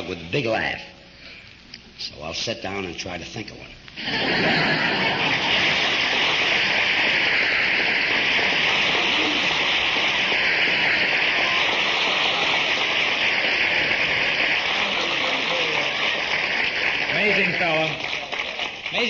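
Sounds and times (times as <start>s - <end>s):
audience applauding: 4.0s - 19.0s.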